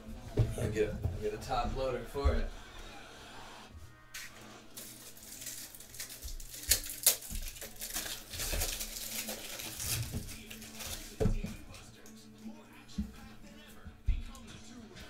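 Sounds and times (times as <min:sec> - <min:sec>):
plastic packaging crinkling: 0:04.7 - 0:11.4.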